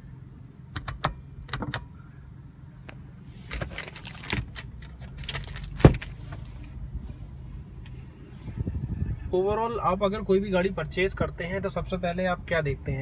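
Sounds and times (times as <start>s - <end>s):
sun visor rustling and clacking: 2.9s - 8.0s.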